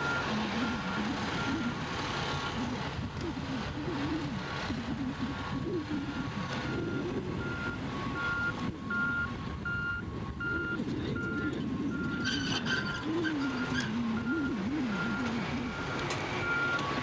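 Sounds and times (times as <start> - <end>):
diesel machinery engine: 0.0 - 17.0
backup alarm beeping: 6.1 - 17.0.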